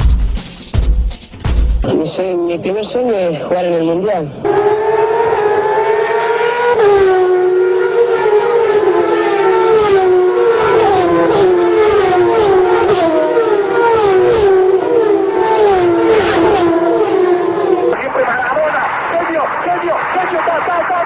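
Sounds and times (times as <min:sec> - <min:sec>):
race car engines at high revs: 0:04.3 - 0:18.0.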